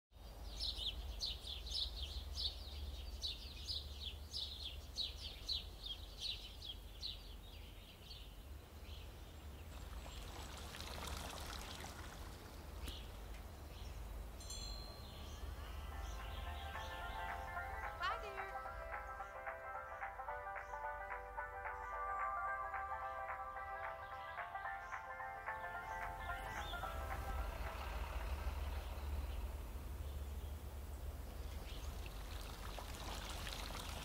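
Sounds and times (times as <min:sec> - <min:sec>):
bird chirping: 0:00.2 - 0:11.5, 0:12.6 - 0:34.0
steady low rumble: 0:25.7 - 0:32.3.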